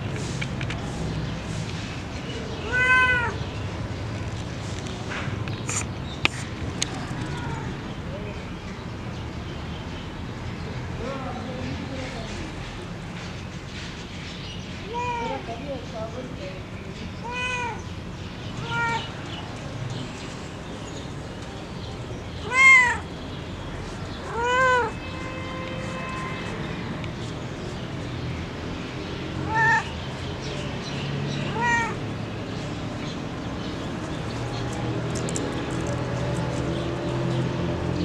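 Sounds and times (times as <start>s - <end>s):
cat meowing: 2.6s - 3.4s, 6.9s - 7.8s, 14.9s - 15.5s, 17.2s - 17.9s, 18.6s - 19.1s, 22.4s - 23.1s, 24.2s - 25.1s, 29.4s - 29.9s, 31.4s - 32.0s.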